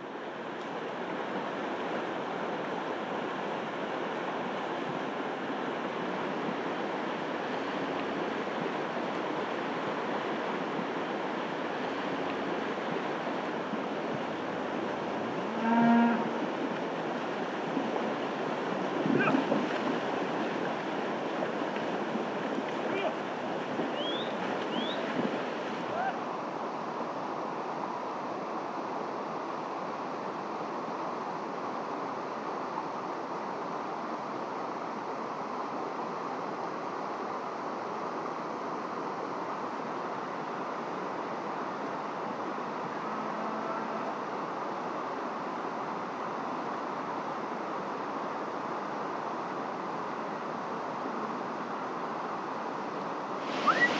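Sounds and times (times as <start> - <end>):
fast river rushing: 0.0 - 53.9
cow mooing: 15.4 - 16.4, 43.1 - 44.1.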